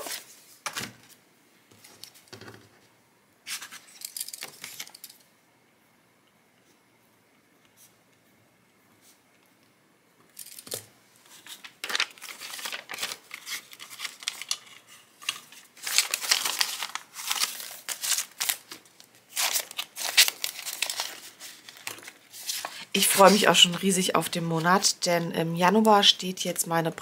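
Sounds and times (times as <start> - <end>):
plastic binder pocket crinkling: 10.4 - 24.9
banknotes rustling: 10.4 - 26.0.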